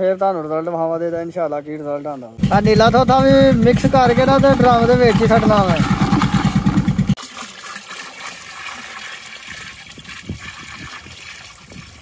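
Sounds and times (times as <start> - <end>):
engine running: 2.4 - 7.2
irrigation water trickling: 3.6 - 12.0.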